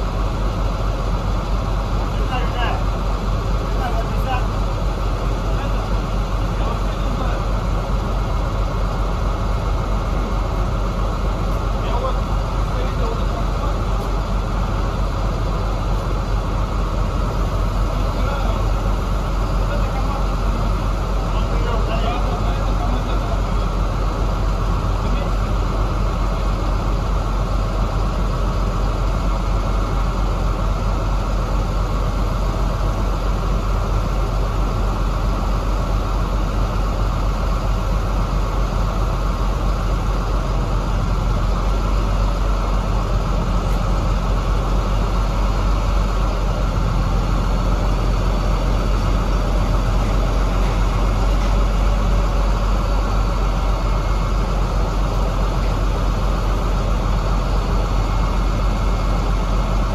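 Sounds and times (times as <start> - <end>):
diesel truck engine droning: 0.0 - 59.9.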